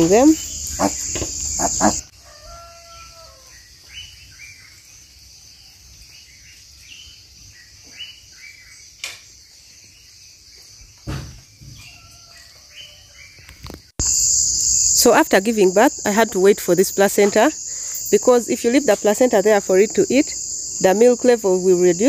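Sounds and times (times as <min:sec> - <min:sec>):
birds chirping: 0:00.0 - 0:02.1
faint insect buzz: 0:00.0 - 0:03.6, 0:14.0 - 0:22.0
dull thump: 0:11.0 - 0:11.8.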